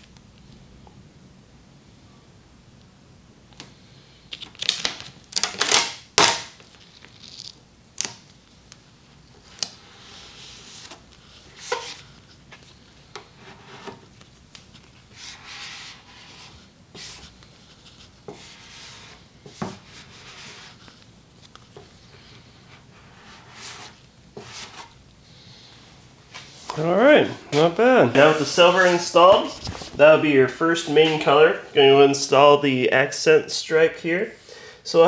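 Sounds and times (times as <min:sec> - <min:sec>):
vinyl rubbing on car body: 0:14.7 - 0:21.0, 0:21.9 - 0:24.9, 0:26.3 - 0:30.2.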